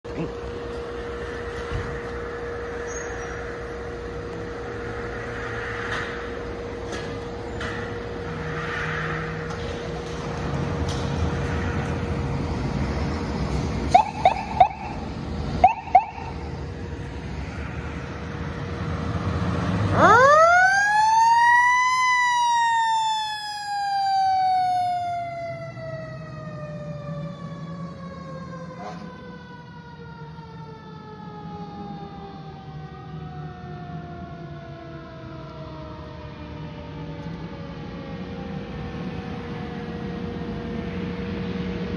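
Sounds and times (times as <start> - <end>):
diesel engine rumble: 0.0 - 29.7
mechanical siren wailing: 0.1 - 8.4, 13.9 - 16.7, 19.8 - 41.0.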